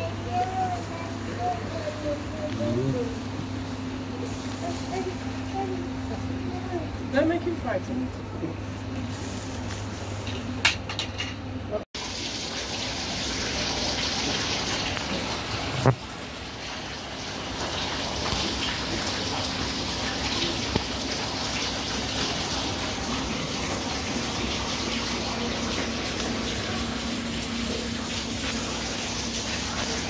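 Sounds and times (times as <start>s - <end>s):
aquarium water rushing: 12.0s - 30.0s.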